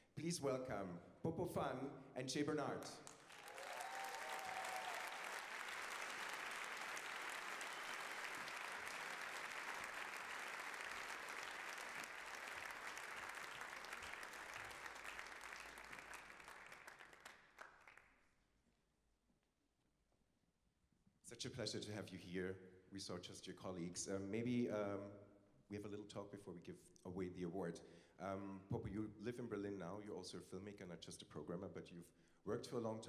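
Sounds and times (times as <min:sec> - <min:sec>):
audience applauding: 0:03.0 - 0:18.0.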